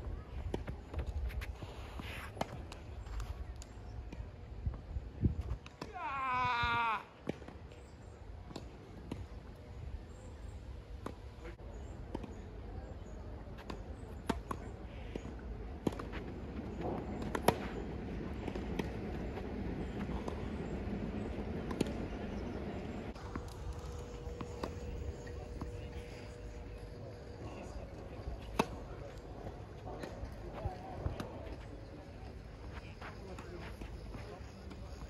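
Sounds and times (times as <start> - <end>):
tennis balls struck and bouncing: 13.5 - 35.0.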